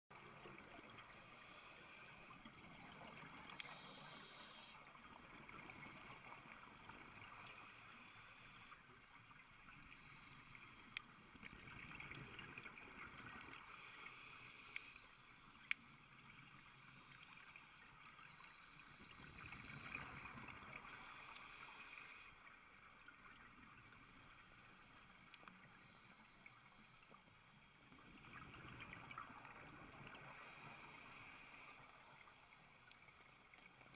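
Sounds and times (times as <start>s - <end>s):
low underwater wash: 0.1s - 33.9s
diver breathing through regulator: 1.1s - 2.4s, 3.6s - 4.8s, 13.7s - 15.0s, 20.8s - 22.3s.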